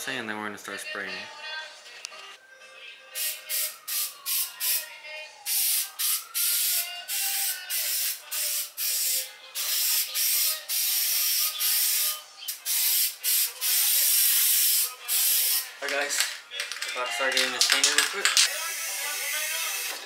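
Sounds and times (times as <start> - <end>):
aerosol spray can hissing: 3.2 - 4.8, 5.5 - 15.7, 18.4 - 20.0.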